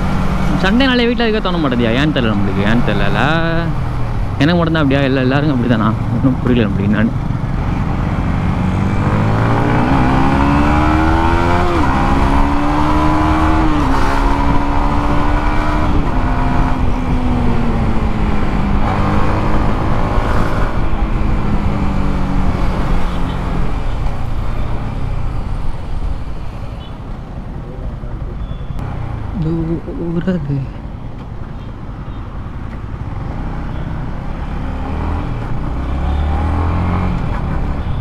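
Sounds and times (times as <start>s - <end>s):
motorcycle engine accelerating: 1.6s - 25.4s
wind rumble on microphone: 12.4s - 22.7s.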